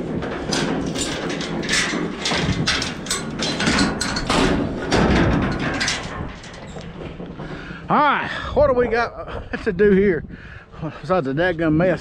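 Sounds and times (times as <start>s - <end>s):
gate latch and chain rattling: 0.0s - 7.5s.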